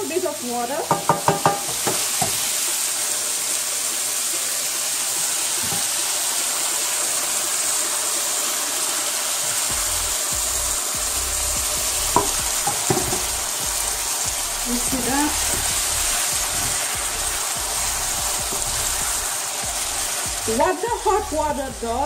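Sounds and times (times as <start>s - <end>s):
chicken sizzling in a pan: 0.0s - 22.0s
wooden spatula knock: 0.9s - 2.4s, 12.1s - 13.3s
water pouring into a pan: 1.4s - 20.8s.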